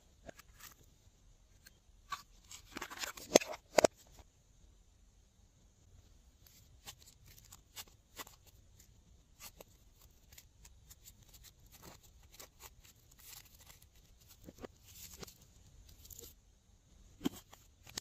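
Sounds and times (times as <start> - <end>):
faint clicks and crinkles of cutouts: 6.4 - 16.4.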